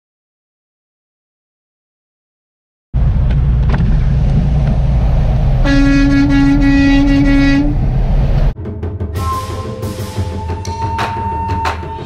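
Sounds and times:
truck engine and road rumble: 3.0s - 8.6s
air horn note: 5.6s - 7.8s, 9.2s - 12.0s.

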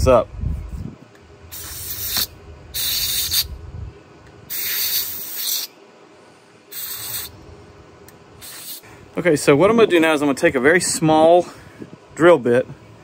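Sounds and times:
aerosol spray hissing: 1.5s - 3.5s, 4.5s - 5.7s, 6.7s - 7.3s, 8.4s - 8.8s.

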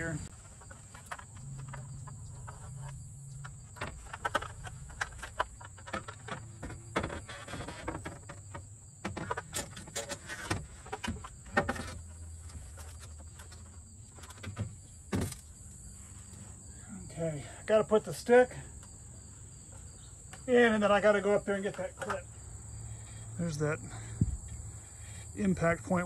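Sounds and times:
metal frame knocking and scraping: 0.0s - 15.9s.

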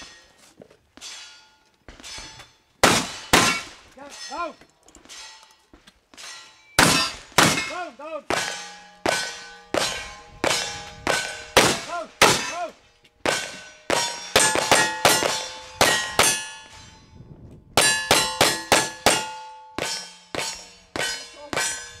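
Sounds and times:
steel target ringing: 1.0s - 5.6s, 6.2s - 22.0s
gunshots: 2.8s - 3.8s, 6.8s - 16.4s.

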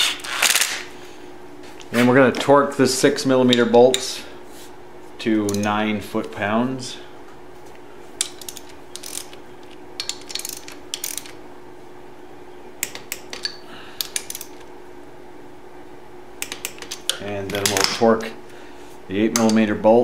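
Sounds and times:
torque wrench ratchet clicking: 8.2s - 9.4s, 10.0s - 11.4s, 12.8s - 14.6s.

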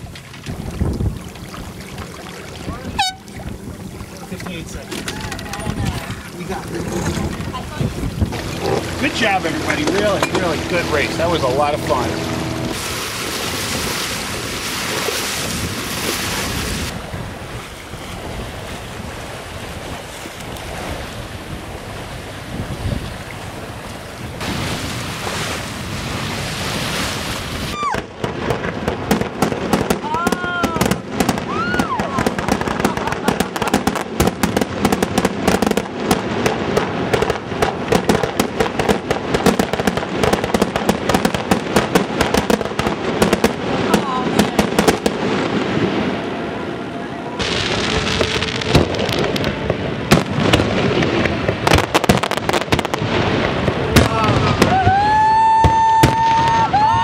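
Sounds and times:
water rushing along hull: 0.0s - 57.0s
wind buffeting microphone: 0.0s - 57.0s
fireworks bursting and crackling: 7.4s - 17.6s, 24.4s - 46.6s, 47.4s - 57.0s.

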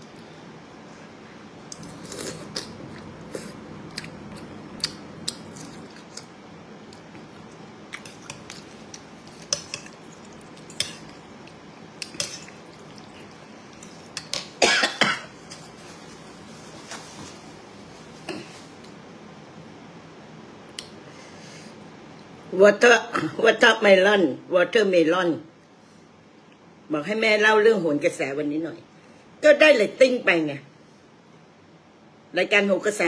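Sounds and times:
person chewing: 1.7s - 14.6s.

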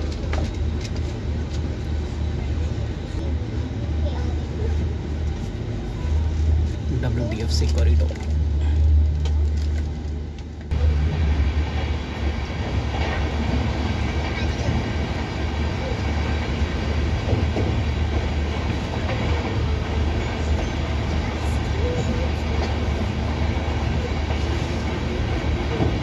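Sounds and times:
train wheels rumbling on rails: 0.0s - 26.0s.

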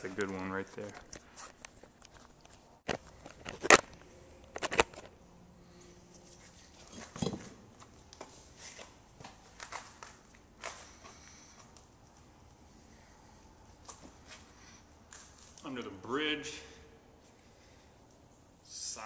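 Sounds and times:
handling knocks and rustles: 6.2s - 11.2s.

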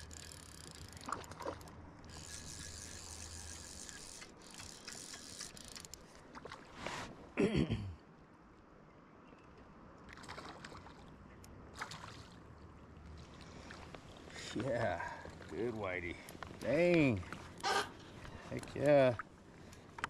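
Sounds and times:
fly reel clicking: 2.1s - 6.0s.

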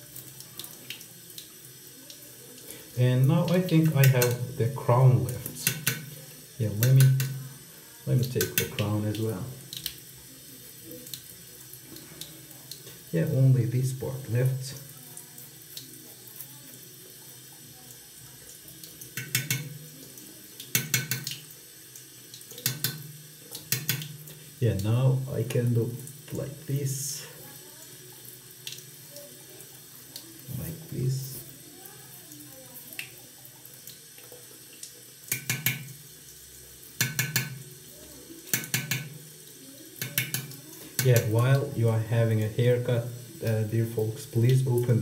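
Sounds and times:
tap water running into sink: 0.0s - 45.0s
water splashes and knocks: 5.2s - 7.4s, 8.2s - 8.9s, 19.1s - 19.8s, 20.7s - 21.5s, 22.5s - 24.3s, 35.3s - 36.0s, 37.0s - 37.7s, 38.5s - 39.3s, 40.0s - 41.7s.

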